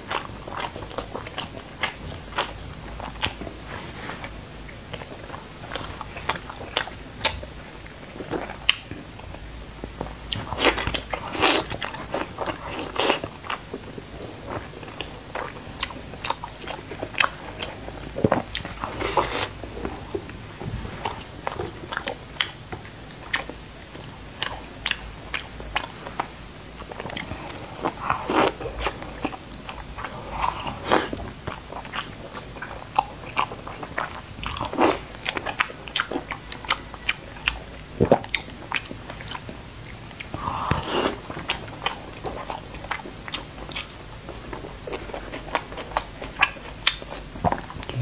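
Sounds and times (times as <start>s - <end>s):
person chewing food: 0.0s - 48.0s.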